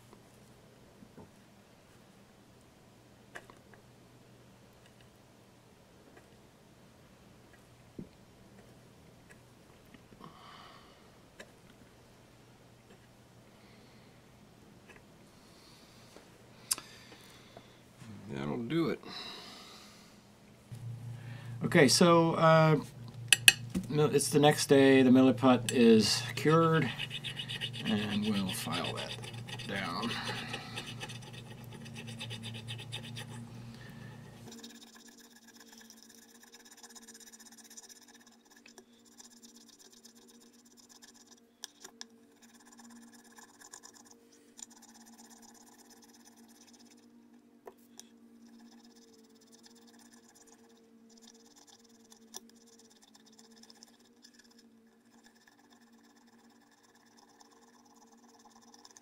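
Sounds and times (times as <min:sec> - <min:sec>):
file scraping putty: 0:26.3 - 0:33.4.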